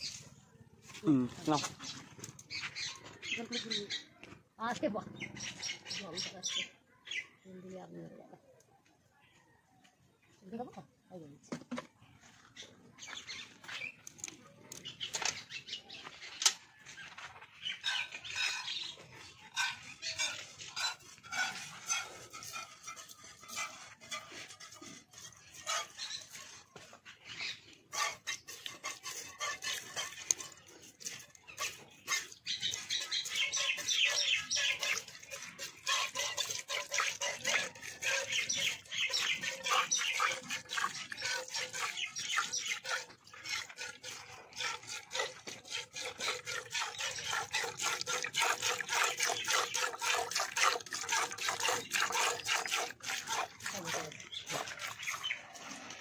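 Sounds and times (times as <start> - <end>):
milk squirting into steel bucket: 27.8 - 56.0.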